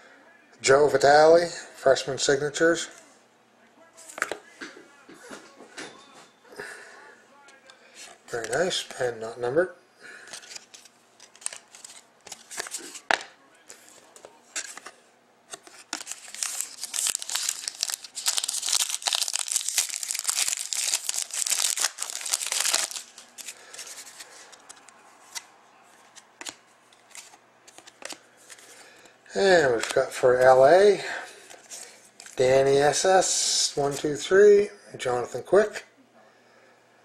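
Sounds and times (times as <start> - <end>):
wrapper tearing and crinkling: 15.8 - 24.7.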